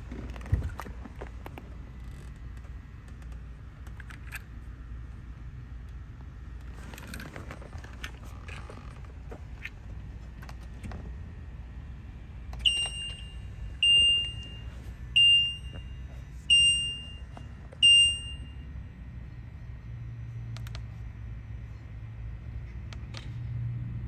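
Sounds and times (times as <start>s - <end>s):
electronic warning beeps: 12.6s - 18.7s
soft clicks: 20.5s - 20.9s.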